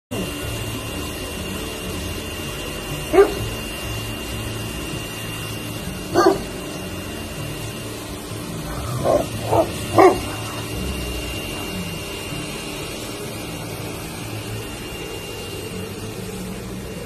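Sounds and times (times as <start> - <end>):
steady low hum: 0.1 - 17.0
dog barking: 3.1 - 3.5, 6.2 - 6.5, 8.8 - 10.6.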